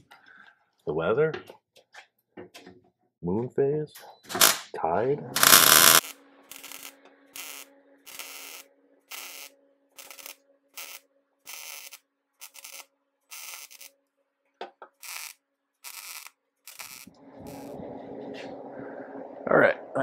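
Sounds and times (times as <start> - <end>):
welding arc bursts: 4.3 - 4.6, 5.4 - 13.9, 14.9 - 17.7
steady low hum: 17.1 - 20.0.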